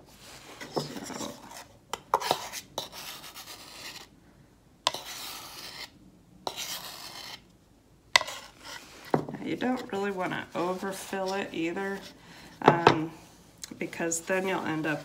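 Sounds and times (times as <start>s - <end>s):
scraping against mixing container: 0.2s - 4.1s, 4.9s - 7.4s, 8.2s - 12.6s.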